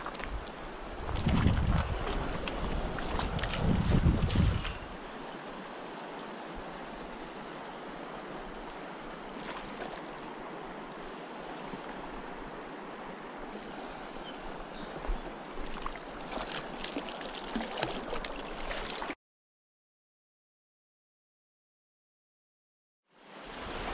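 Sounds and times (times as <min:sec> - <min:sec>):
small water splashes: 0:00.0 - 0:05.0, 0:08.6 - 0:10.6, 0:14.7 - 0:19.2
rushing mountain stream: 0:00.0 - 0:19.2, 0:23.2 - 0:23.9.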